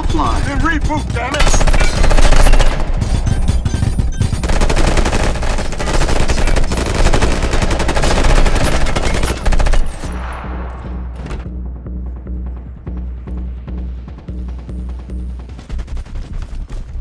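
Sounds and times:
rapid automatic rifle fire: 1.4 - 3.0, 4.3 - 10.0.

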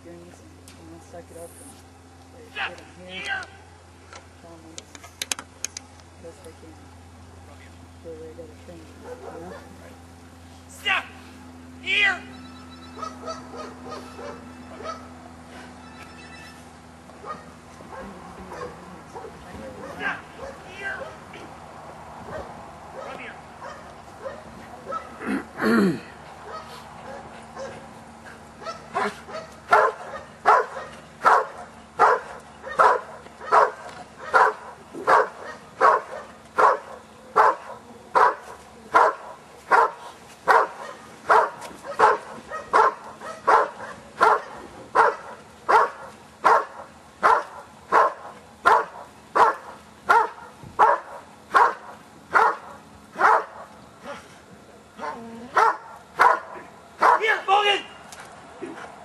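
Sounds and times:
dog barking: 9.0 - 9.9, 13.0 - 15.1, 17.2 - 21.2, 22.3 - 25.2, 26.4 - 27.8, 28.6 - 54.2, 55.0 - 57.3.

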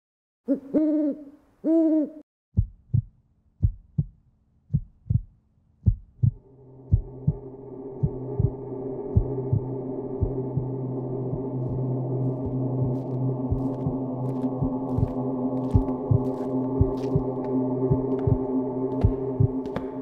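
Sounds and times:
low heartbeat thump: 2.6 - 20.0
droning sustained tone: 6.4 - 20.0
hooting tones: 6.5 - 19.7.

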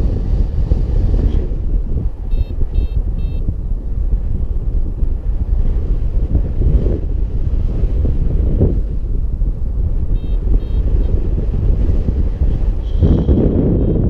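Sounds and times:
wind buffeting microphone: 0.0 - 14.0
variometer high beeps: 2.3 - 3.4, 10.1 - 10.9
variometer steady high tone: 2.3 - 3.5, 10.1 - 11.1, 12.8 - 14.0.

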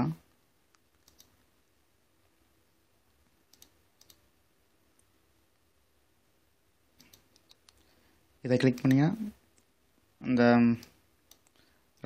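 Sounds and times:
computer mouse clicks: 0.7 - 1.4, 3.5 - 4.2, 7.0 - 7.9, 8.7 - 9.7, 10.8 - 12.0.

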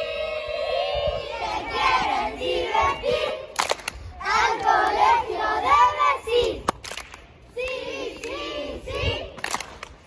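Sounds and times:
children singing a chant: 0.0 - 3.6, 4.2 - 6.7, 7.5 - 9.4
hand claps: 3.6 - 4.0, 6.6 - 7.3, 9.4 - 10.0.

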